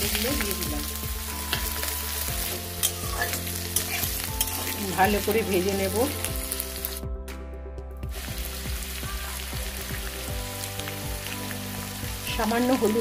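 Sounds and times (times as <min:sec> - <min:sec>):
potatoes sizzling in hot oil: 0:00.0 - 0:07.0, 0:08.1 - 0:13.0.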